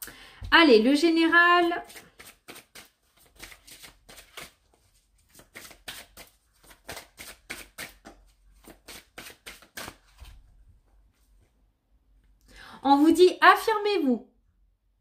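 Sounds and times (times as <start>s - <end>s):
cards being shuffled: 1.8s - 10.4s.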